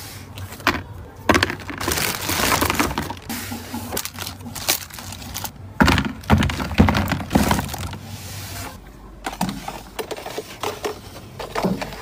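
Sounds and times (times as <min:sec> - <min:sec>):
plastic wrap crinkling: 0:00.8 - 0:08.0
dull knocks and thuds: 0:05.8 - 0:08.0.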